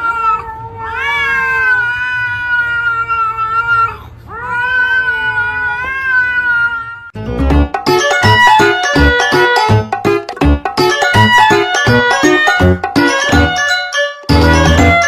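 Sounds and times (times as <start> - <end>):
cat yowling: 0.0 - 7.2.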